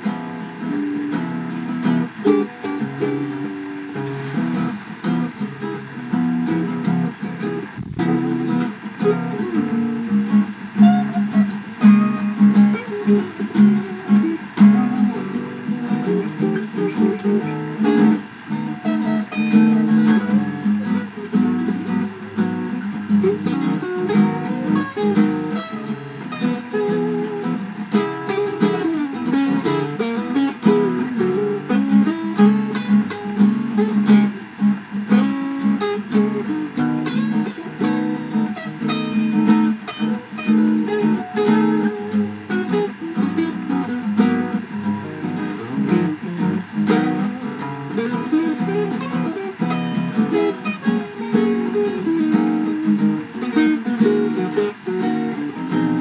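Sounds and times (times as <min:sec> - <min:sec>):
upbeat guitar instrumental: 0:00.0 - 0:56.0.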